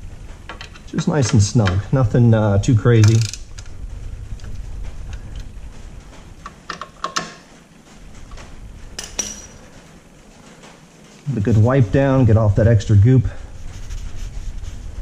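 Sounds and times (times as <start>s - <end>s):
metal tool clinks: 9.0s - 9.6s.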